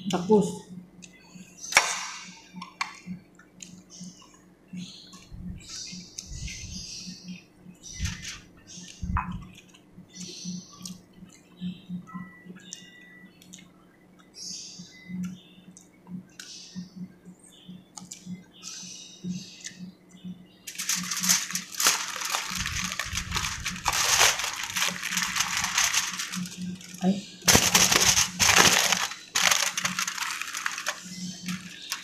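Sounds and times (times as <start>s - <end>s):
soft eating clicks: 1.0s - 1.2s, 8.8s - 11.5s, 12.6s - 14.4s, 15.2s - 16.6s, 17.9s - 18.4s
aluminium foil crinkling: 8.0s - 8.4s, 20.7s - 32.0s.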